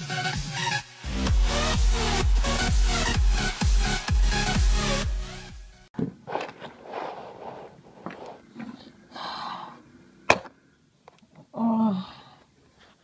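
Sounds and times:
electronic dance music: 0:00.0 - 0:05.6
plastic toys handled by hand: 0:06.0 - 0:09.0.

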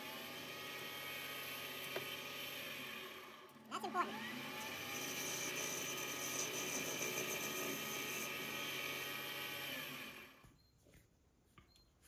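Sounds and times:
metal lathe running: 0:03.5 - 0:10.3.

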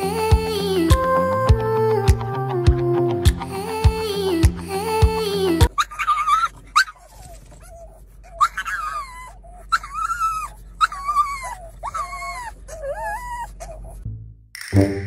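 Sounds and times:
car hum: 0:00.0 - 0:14.5
dog whining: 0:05.7 - 0:14.0.

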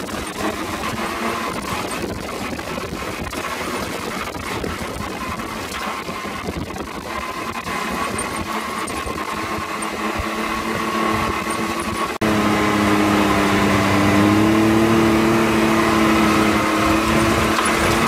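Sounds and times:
off-road buggy engine running: 0:00.0 - 0:18.0
tyres on gravel: 0:13.2 - 0:18.0.

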